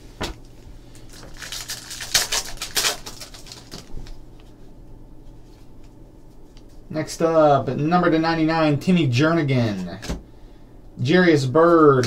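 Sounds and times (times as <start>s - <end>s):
foil pack crinkling and tearing: 0.9s - 4.2s
cards shuffling: 1.3s - 4.1s.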